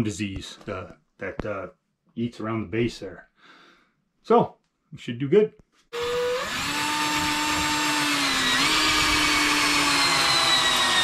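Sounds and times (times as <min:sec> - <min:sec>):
cordless drill whining in wood: 0:05.9 - 0:11.0.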